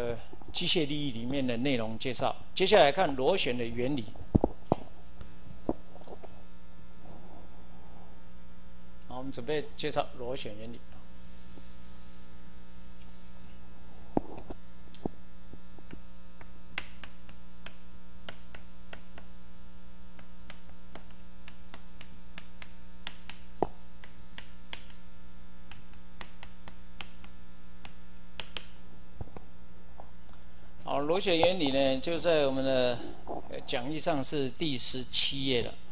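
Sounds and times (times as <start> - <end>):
electrical mains hum: 0.0 - 35.9
chalk tapping on blackboard: 16.8 - 19.3, 20.2 - 25.0, 25.7 - 28.8.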